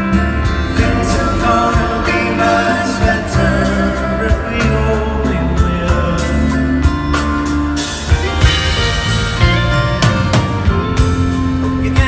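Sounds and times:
singing voices: 0.0 - 7.4, 11.5 - 12.0
acoustic guitar: 0.0 - 12.0
bass: 0.0 - 12.0
steady drum beat: 0.0 - 12.0.

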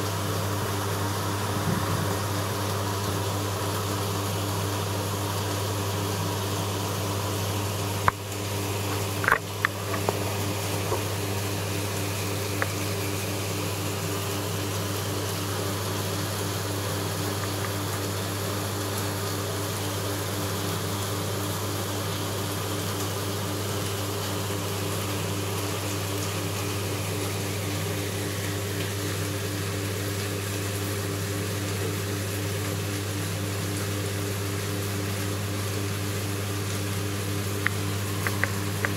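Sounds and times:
aquarium pump hum and water hiss: 0.0 - 38.9.

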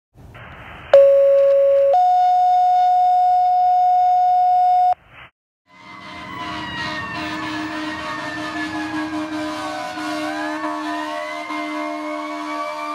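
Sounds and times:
road noise: 0.2 - 1.1, 5.0 - 12.9
radio hiss: 0.3 - 1.0
distant siren: 5.7 - 12.9.

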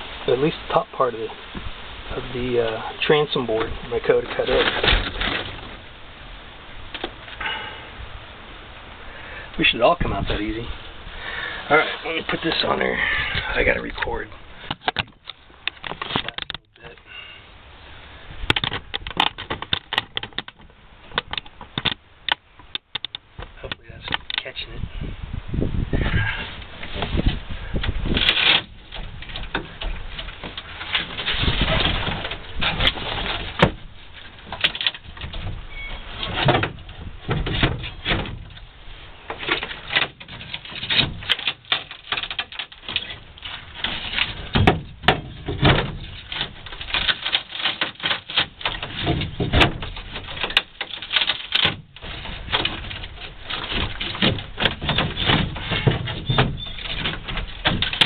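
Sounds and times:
hand tool scraping wood: 39.3 - 58.0.

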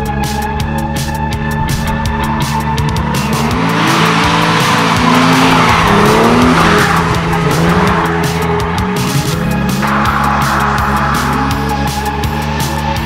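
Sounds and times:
electronic music: 0.1 - 13.0
car engine revving: 0.7 - 13.0
tyres squealing: 3.1 - 12.3.

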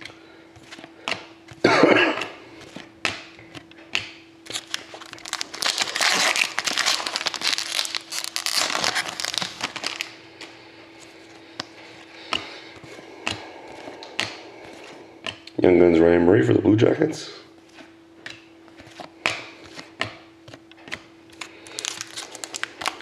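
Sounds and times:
foil wrapper crinkling: 4.5 - 10.2, 21.3 - 23.0.

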